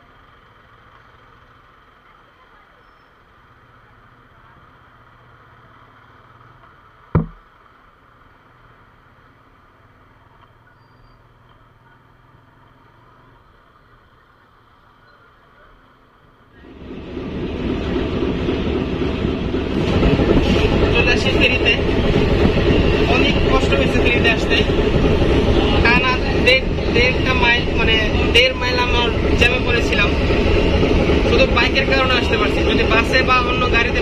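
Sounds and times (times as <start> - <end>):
muffled motorcycle hum: 3.4 - 16.4
sharp thump: 7.2 - 7.4
loud rough ferry rumble: 16.5 - 34.0.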